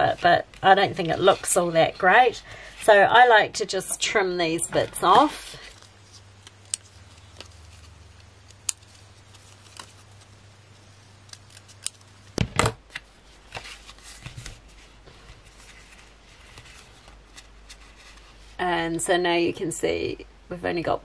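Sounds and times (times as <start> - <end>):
paper handling: 4.8 - 18.5.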